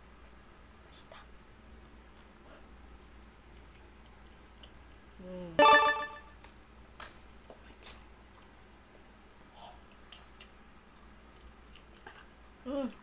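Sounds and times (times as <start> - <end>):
short loud ringing tone: 5.6 - 6.3.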